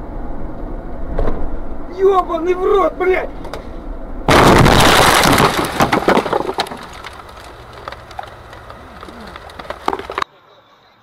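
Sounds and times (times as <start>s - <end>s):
car crash impact and crunching: 4.3s - 10.2s
crackles and rattles: 4.3s - 10.2s.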